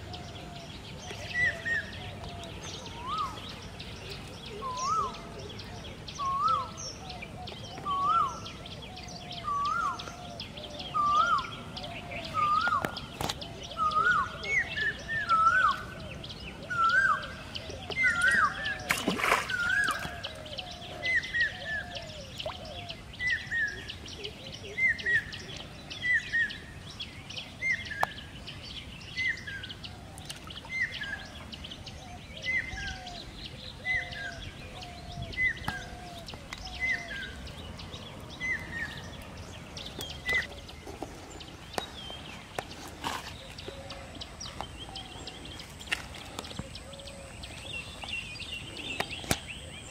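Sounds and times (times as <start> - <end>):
bird calling: 0.0 - 26.7, 29.2 - 49.9.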